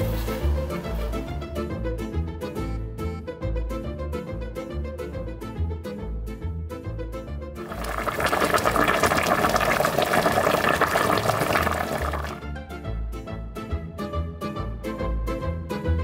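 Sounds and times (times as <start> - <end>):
pasta water boiling: 7.6 - 12.4.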